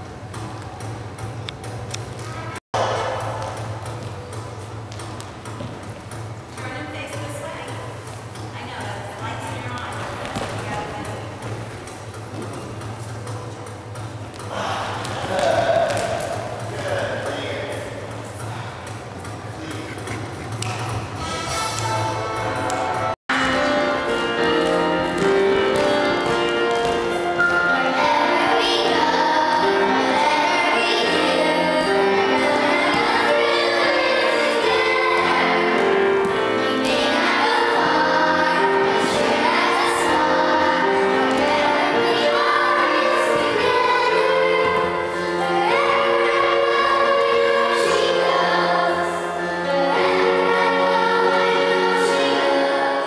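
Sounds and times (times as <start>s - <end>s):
show tune singing: 23.3s - 53.0s.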